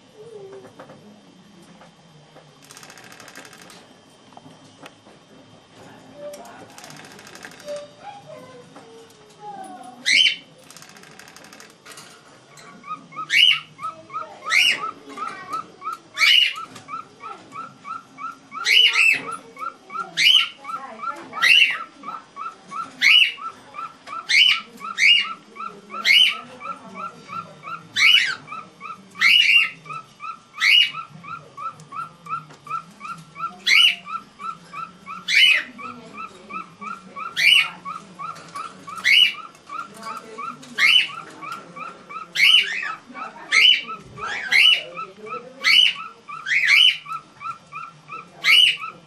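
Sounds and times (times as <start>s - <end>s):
soft bird chirping: 12.6s - 49.0s.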